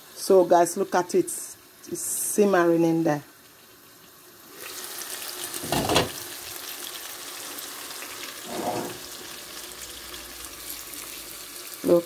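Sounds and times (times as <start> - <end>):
food sizzling in a pot: 0.0 - 12.0
clunk: 5.6 - 6.2.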